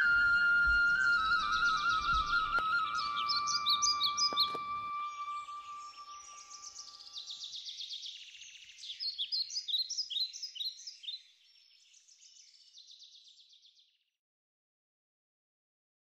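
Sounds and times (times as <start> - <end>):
background music: 0.0 - 6.6
birds chirping and trilling: 0.0 - 13.7.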